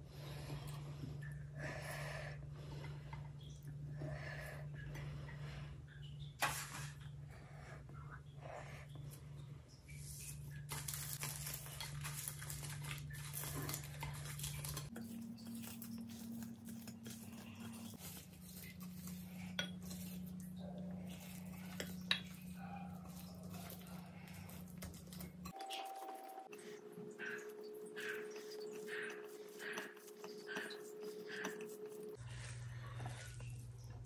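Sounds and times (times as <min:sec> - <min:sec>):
wet squishing of food by hand: 0:07.9 - 0:34.0.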